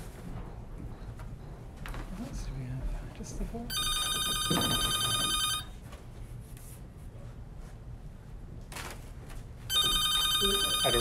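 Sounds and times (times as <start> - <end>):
telephone ringing electronic trill: 3.7 - 5.7, 9.7 - 11.0.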